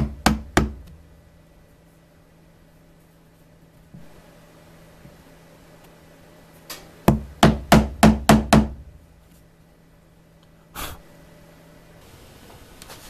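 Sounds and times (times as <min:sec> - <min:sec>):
hammer striking chisel: 0:00.0 - 0:01.0, 0:07.1 - 0:08.8.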